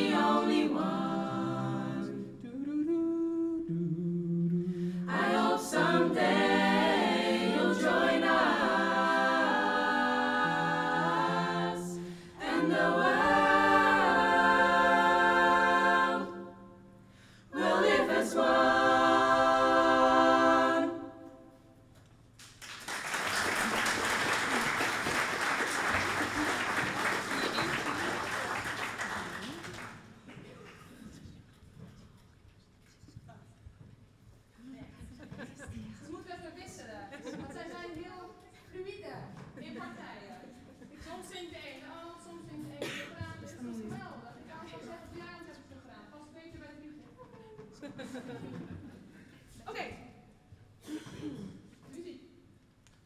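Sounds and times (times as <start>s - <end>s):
a cappella choir singing: 0.0s - 21.9s
audience applauding: 22.4s - 30.9s.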